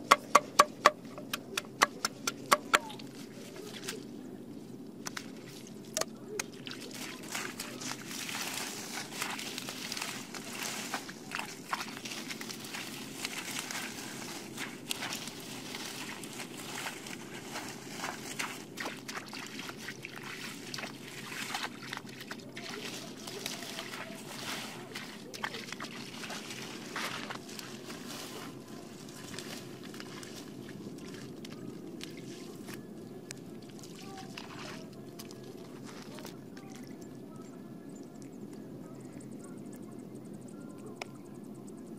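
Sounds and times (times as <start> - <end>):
squelching steps in mud: 0.0 - 4.2, 4.8 - 37.2
wading in muddy water: 0.0 - 39.8
steady low hum: 0.0 - 41.9
leaves rustling and snapping: 6.0 - 19.2, 22.6 - 33.4.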